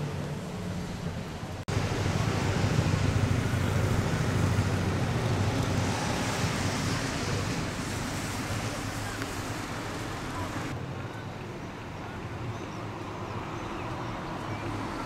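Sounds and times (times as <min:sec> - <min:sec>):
low outdoor hum: 0:00.0 - 0:15.0
wind buffeting microphone: 0:00.1 - 0:10.8.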